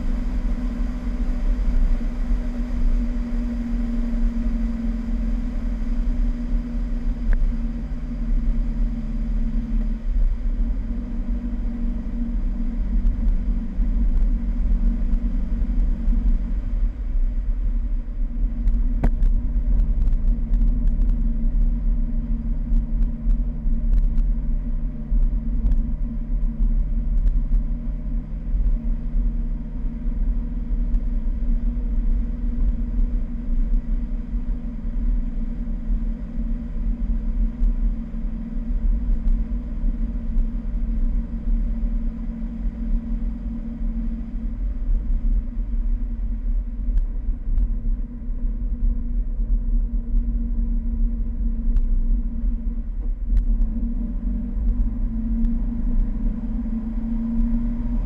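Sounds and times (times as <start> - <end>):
car engine running: 0.0 - 58.0
low wind rumble on microphone: 0.0 - 58.0
light ticks: 7.3 - 7.5, 22.7 - 24.4, 25.1 - 27.7, 37.6 - 37.8, 46.9 - 47.8, 51.7 - 52.2, 53.0 - 53.8, 54.6 - 56.1.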